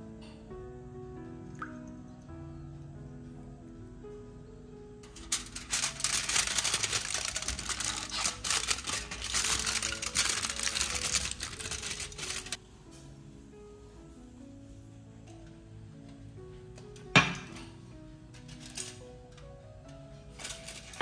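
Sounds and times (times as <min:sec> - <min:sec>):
soft background music: 0:00.0 - 0:21.0
aluminium foil crinkling: 0:05.0 - 0:12.6, 0:18.3 - 0:21.0.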